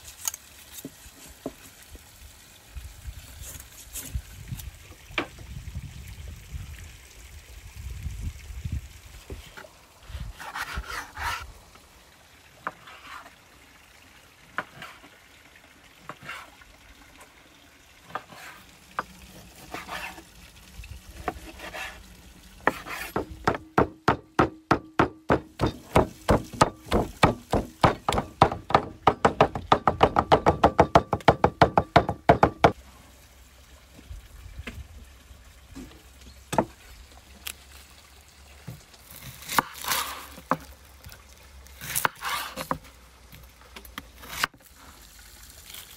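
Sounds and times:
knife cutting and scraping meat: 10.2s - 11.5s, 12.7s - 13.3s, 18.2s - 18.7s, 19.4s - 20.3s, 21.2s - 22.1s, 22.7s - 23.3s, 39.0s - 40.6s, 41.8s - 42.8s, 44.2s - 44.5s
knife chopping on wooden block: 22.7s - 32.8s.

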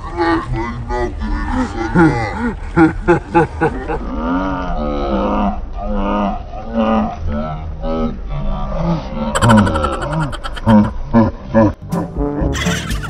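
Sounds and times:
laughter: 1.8s - 4.1s, 9.4s - 11.7s, 12.5s - 13.0s.

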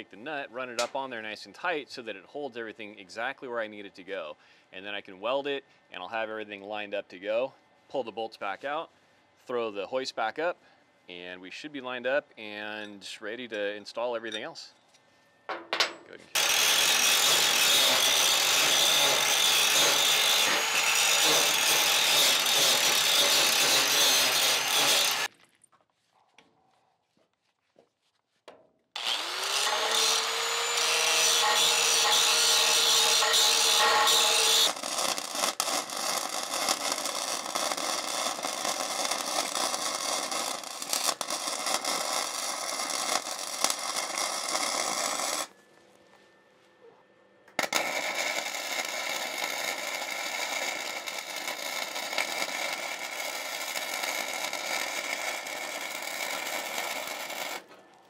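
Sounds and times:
angle grinder grinding steel: 16.3s - 25.3s, 29.0s - 45.5s, 47.6s - 57.7s
welder arc crackling: 16.4s - 25.3s, 29.0s - 45.5s, 47.6s - 57.7s.

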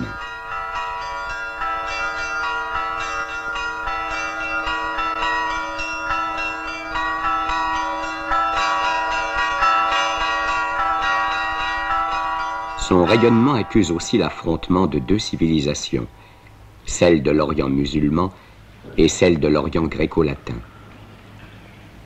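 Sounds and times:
bells ringing: 0.0s - 21.0s
steady held tone: 10.9s - 16.8s.

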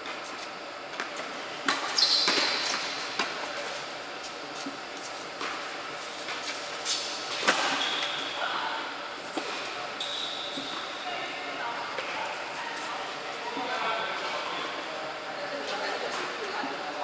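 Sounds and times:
shoes squeaking: 0.0s - 14.6s
balls bouncing on hard court: 1.0s - 3.7s.

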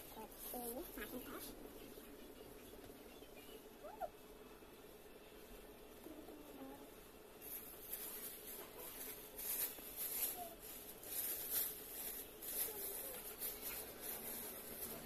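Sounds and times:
plastic sheet crinkling: 7.4s - 15.0s.

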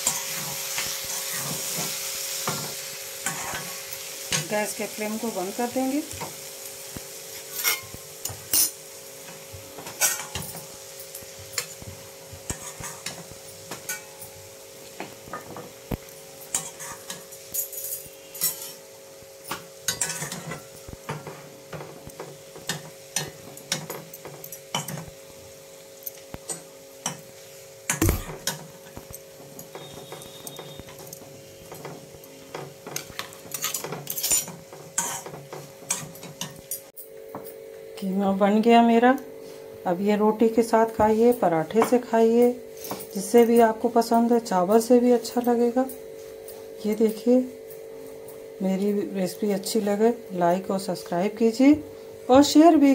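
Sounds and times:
light sizzle from hot pan: 0.0s - 52.9s
spatula scraping metal pan: 3.2s - 3.7s, 7.4s - 7.9s, 12.5s - 13.2s, 16.5s - 17.2s.

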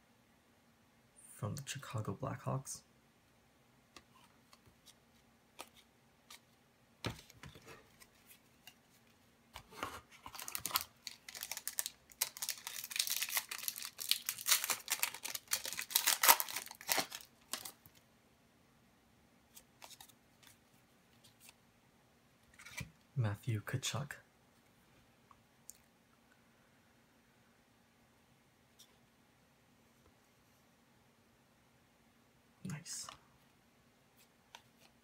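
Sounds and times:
wrapper crinkling: 10.1s - 17.9s
foil card pack tearing: 10.3s - 17.8s.

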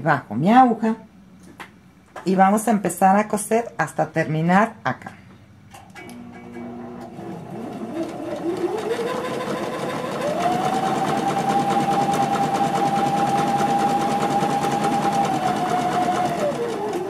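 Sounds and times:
sewing machine stitching: 6.0s - 17.0s.

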